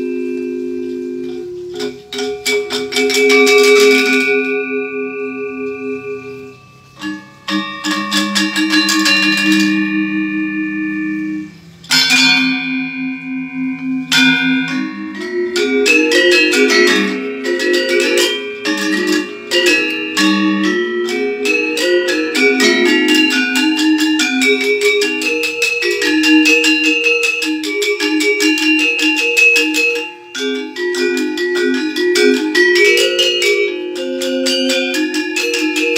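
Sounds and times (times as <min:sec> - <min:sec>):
metallophones struck with mallets: 0:00.0 - 0:35.9.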